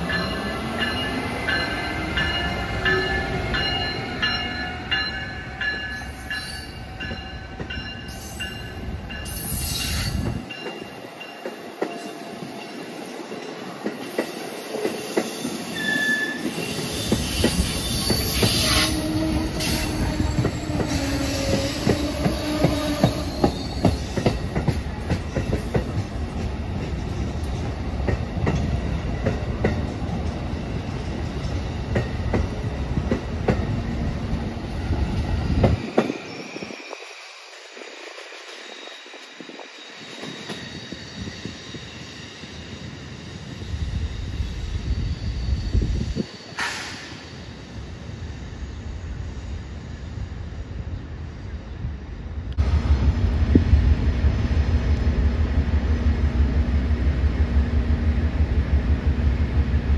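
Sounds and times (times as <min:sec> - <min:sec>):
train wheels squealing: 0:00.0 - 0:26.2, 0:34.8 - 0:51.1
train wheels clicking over rail joints: 0:19.6 - 0:33.8, 0:46.2 - 0:47.2.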